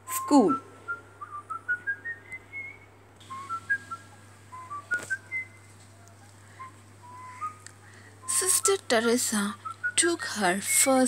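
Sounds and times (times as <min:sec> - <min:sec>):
rising whistled notes: 0:00.1 - 0:05.8, 0:06.5 - 0:08.7.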